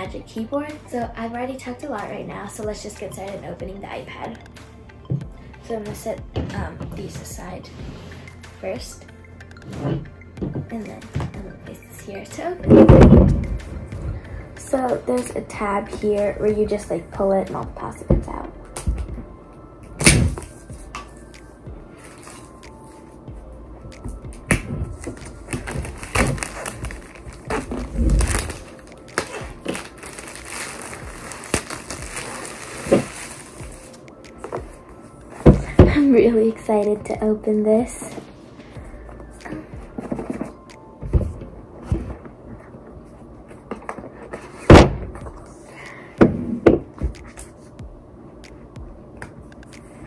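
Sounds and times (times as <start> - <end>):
plastic film crackling and rustling: 24.8 - 34.0.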